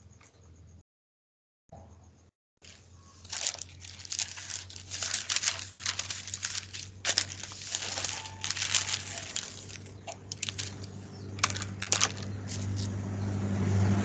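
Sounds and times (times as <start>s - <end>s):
low electrical hum: 2.0s - 13.7s
paper rustling and crinkling: 2.6s - 12.9s.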